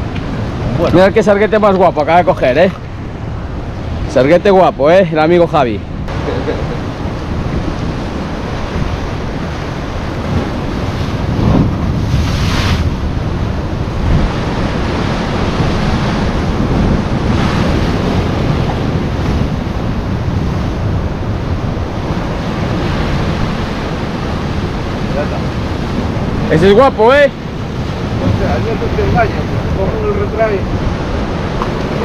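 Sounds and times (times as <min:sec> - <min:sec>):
wind buffeting microphone: 0:00.0 - 0:32.0
waves breaking against rocks: 0:06.8 - 0:32.0.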